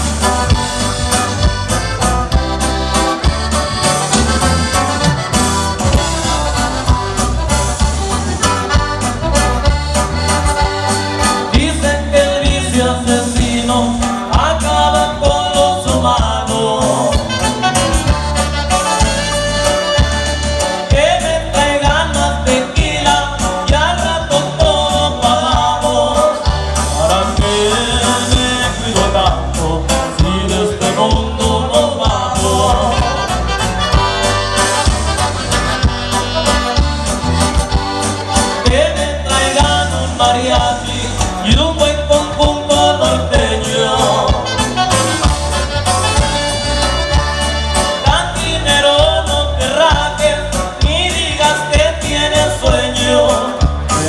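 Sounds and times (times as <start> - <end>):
accordion: 0.0 - 54.0
bass line: 0.0 - 54.0
saxophone: 0.2 - 11.6, 17.2 - 21.0, 32.8 - 38.7, 44.3 - 48.2
person singing: 20.8 - 34.4, 38.6 - 45.1
steady beat: 32.7 - 40.8.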